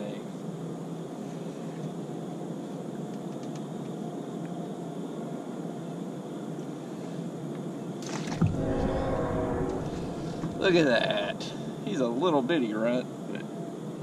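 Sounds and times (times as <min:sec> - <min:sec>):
open-air ambience: 0:00.0 - 0:14.0
low mechanical drone: 0:08.4 - 0:12.1.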